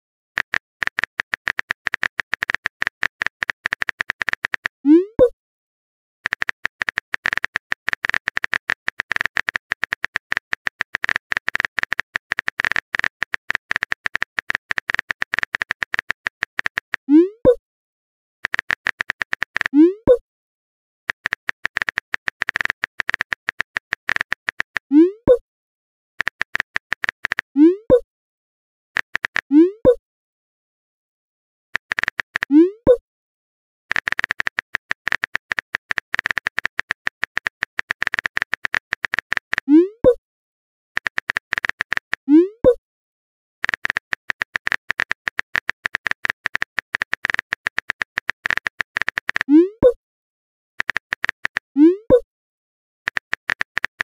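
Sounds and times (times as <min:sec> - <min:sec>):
rapid keyboard typing clicks: 0:00.4 - 0:05.3, 0:06.2 - 0:17.0, 0:18.4 - 0:20.2, 0:21.1 - 0:25.1, 0:26.2 - 0:28.0, 0:29.0 - 0:29.5, 0:31.8 - 0:33.0, 0:33.9 - 0:40.2, 0:41.0 - 0:42.8, 0:43.6 - 0:50.0, 0:50.8 - 0:52.2, 0:53.1 - 0:54.0.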